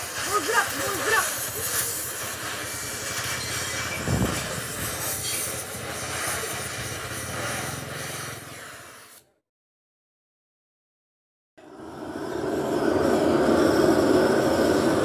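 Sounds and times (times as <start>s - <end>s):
gas torch flame hissing: 0.0s - 9.4s, 11.6s - 15.0s.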